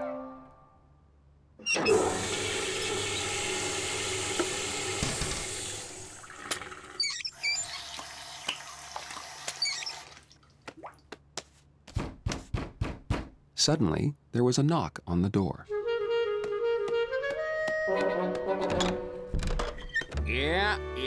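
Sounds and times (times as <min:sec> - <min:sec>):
toilet flushing: 0:01.7 - 0:10.4
tap squeaks: 0:09.4 - 0:10.0, 0:19.5 - 0:20.2.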